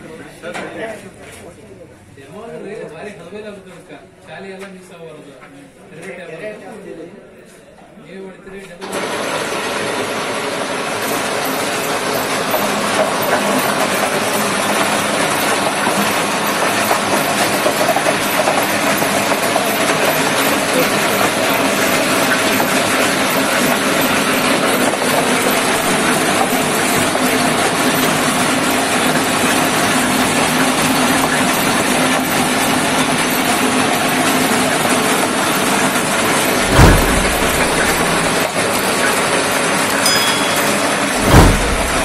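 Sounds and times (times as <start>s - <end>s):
peeling machine running: 25.4s - 28.2s
loud thump: 25.7s - 26.3s, 36.6s - 38.5s, 41.1s - 42.0s.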